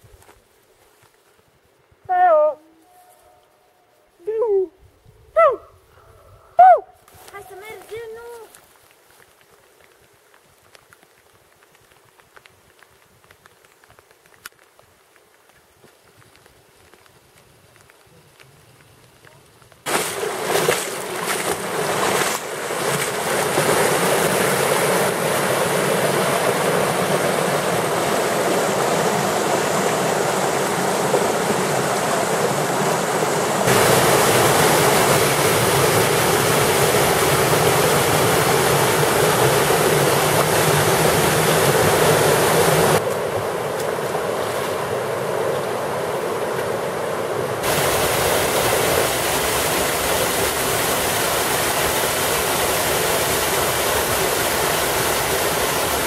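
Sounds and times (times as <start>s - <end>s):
stream rushing over rocks: 19.8s - 56.0s.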